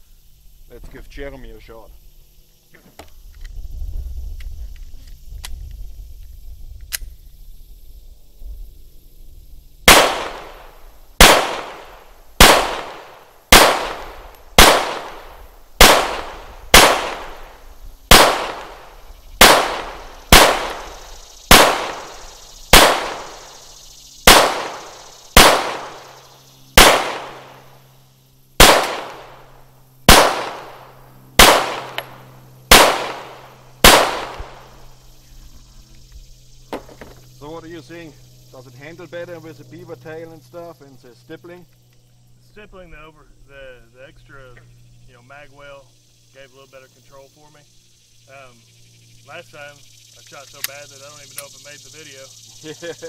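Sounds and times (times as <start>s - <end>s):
pistol shots: 9.9s - 23.6s, 24.2s - 26.2s, 26.8s - 27.8s, 28.6s - 29.5s, 30.1s - 34.8s.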